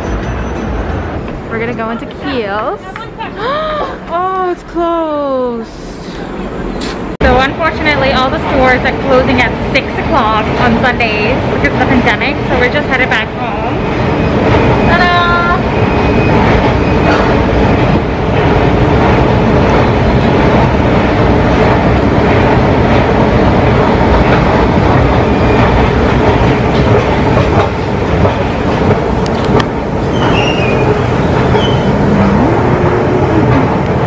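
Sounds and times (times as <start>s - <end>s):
high squeals of train wheels: 0.0s - 1.2s, 14.0s - 17.4s, 30.0s - 32.5s
subway train rumbling: 0.0s - 34.0s.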